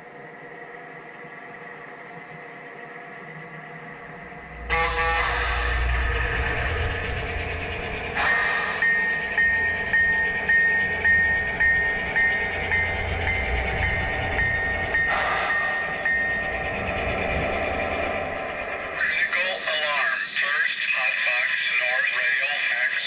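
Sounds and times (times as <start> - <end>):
diesel engine rumble: 4.0 - 20.5
locomotive bell ringing: 4.5 - 20.1.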